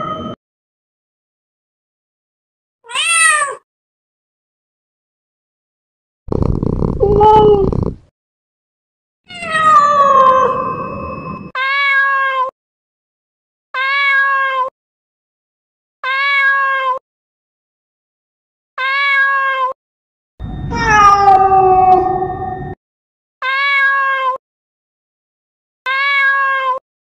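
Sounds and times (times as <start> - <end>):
cat meowing: 2.9 - 3.6, 7.0 - 7.9, 9.3 - 10.6, 11.6 - 12.5, 13.8 - 14.7, 16.0 - 17.0, 18.8 - 19.8, 20.7 - 22.4, 23.4 - 24.4, 25.9 - 26.8.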